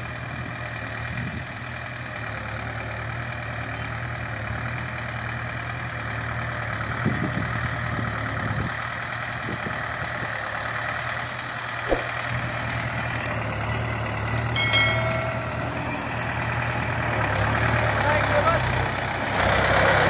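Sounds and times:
tractor diesel engine running: 0.0 - 20.0.

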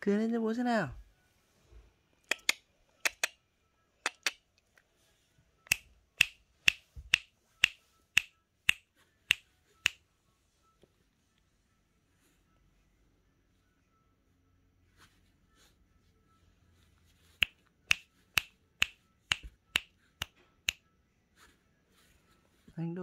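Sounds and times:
finger snaps: 2.2 - 3.4, 4.0 - 4.4, 5.6 - 10.0, 17.4 - 20.8.

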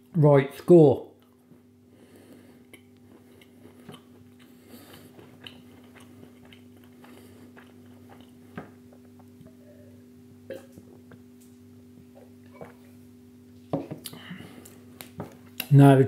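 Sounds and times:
steady low hum: 0.0 - 16.0
faint chewing: 1.2 - 9.6.

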